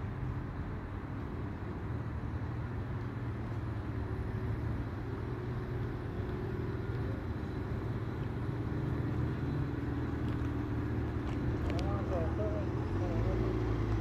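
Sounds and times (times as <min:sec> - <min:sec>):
engine idling hum: 0:00.0 - 0:14.0.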